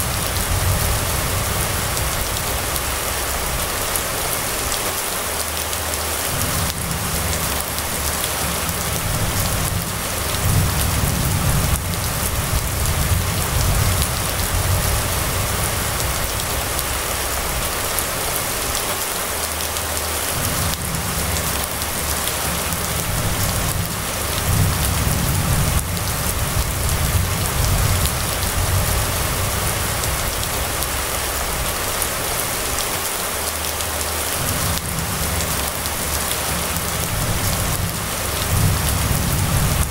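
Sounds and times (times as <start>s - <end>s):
rain on a wet street: 0.0s - 39.9s
low rumble: 6.4s - 18.0s.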